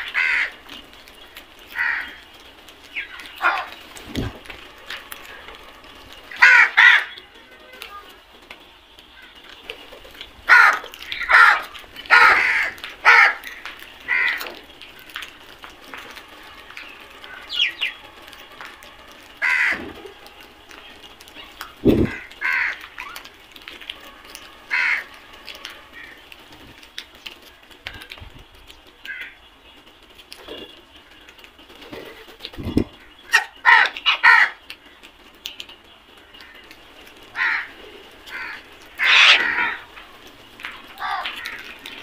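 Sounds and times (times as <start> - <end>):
crows cawing: 0.0 - 0.7, 1.7 - 2.3, 3.0 - 3.8, 6.3 - 7.2, 10.4 - 15.3, 18.6 - 23.3, 23.9 - 26.2, 29.1 - 29.4, 32.9 - 35.0, 36.2 - 36.7, 37.3 - 42.0.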